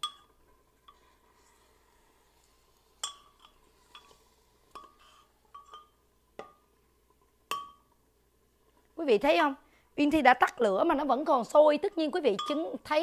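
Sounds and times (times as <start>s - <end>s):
metal ladle clinking on clay pot: 12.3s - 12.6s.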